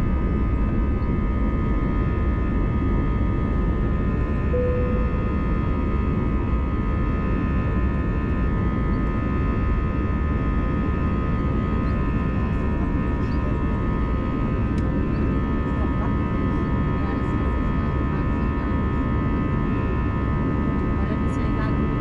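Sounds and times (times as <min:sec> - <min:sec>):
high fan whines: 0:00.0 - 0:22.0
short beep: 0:04.6 - 0:05.5.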